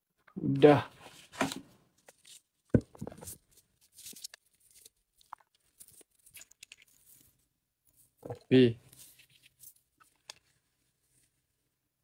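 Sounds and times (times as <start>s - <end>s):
packaging rustling and crinkling: 1.3s - 7.4s.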